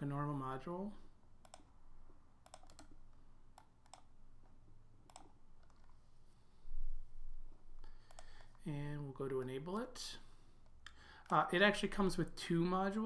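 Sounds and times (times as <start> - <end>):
low steady hum: 0.0 - 13.0
keyboard and mouse clicks: 1.4 - 6.0, 7.8 - 8.6.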